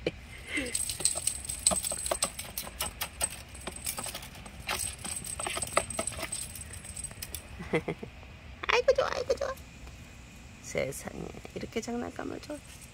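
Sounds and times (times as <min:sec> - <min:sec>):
kittens playing with a toy: 0:00.5 - 0:07.6.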